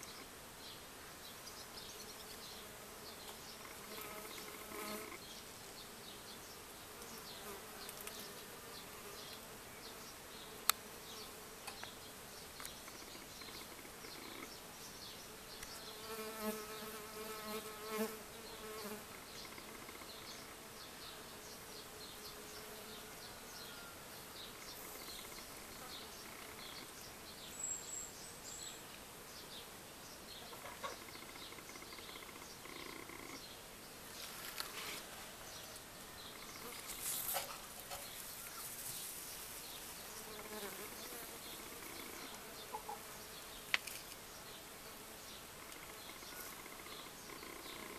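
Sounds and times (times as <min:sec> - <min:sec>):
bees buzzing: 0:15.4 - 0:23.0.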